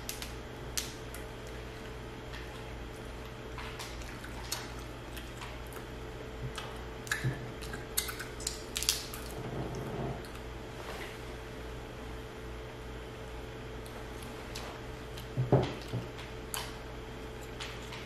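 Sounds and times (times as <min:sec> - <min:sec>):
low electrical hum: 0:00.0 - 0:18.0
crab shells cracking: 0:07.0 - 0:09.3.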